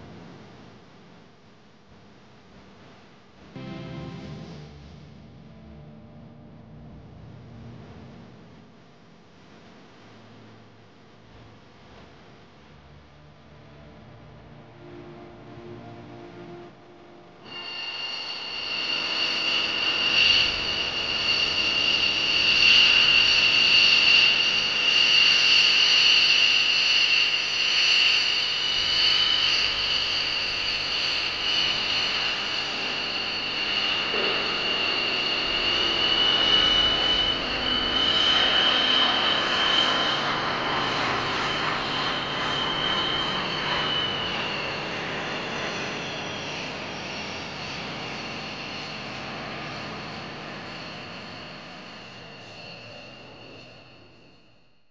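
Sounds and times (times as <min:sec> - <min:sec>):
jet turbine whine: 0:13.4 - 0:54.9
rushing jet noise: 0:17.5 - 0:25.8.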